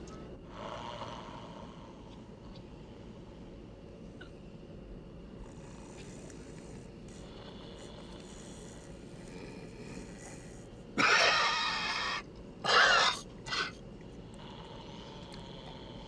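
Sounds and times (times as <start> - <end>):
man snoring: 0.5 - 2.0, 5.4 - 12.2, 14.3 - 16.0.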